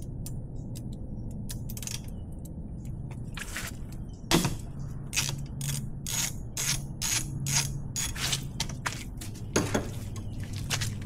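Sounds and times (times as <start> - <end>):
ratchet wrench clicking: 5.1 - 8.2.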